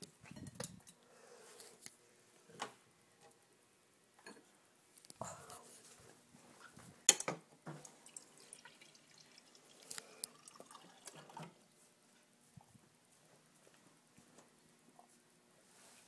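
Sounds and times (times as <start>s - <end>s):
water dripping and splashing: 7.8s - 11.5s
water pouring into a glass: 7.8s - 11.6s.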